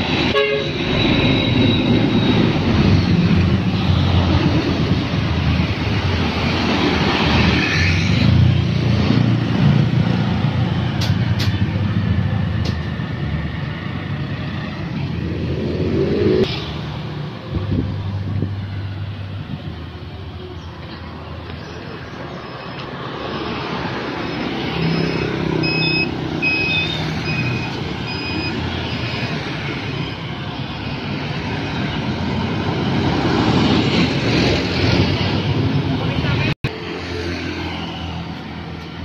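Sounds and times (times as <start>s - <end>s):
motorcycles passing: 0.0s - 39.0s
dump truck passing: 22.9s - 39.0s
short high beeps: 24.8s - 28.6s.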